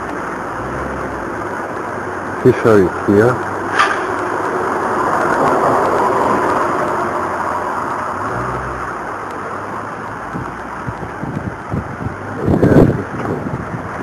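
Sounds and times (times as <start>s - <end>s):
car passing by: 2.5s - 10.9s.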